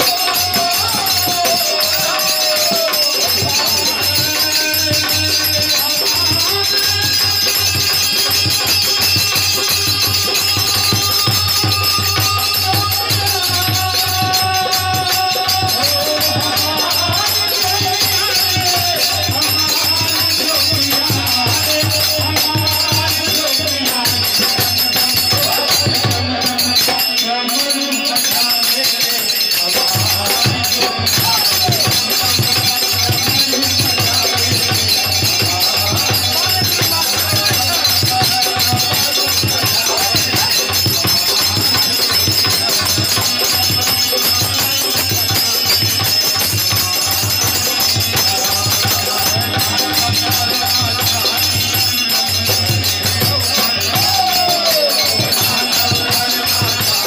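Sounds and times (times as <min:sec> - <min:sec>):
hand cymbals jingling: 0:00.0 - 0:57.0
man singing: 0:00.0 - 0:57.0.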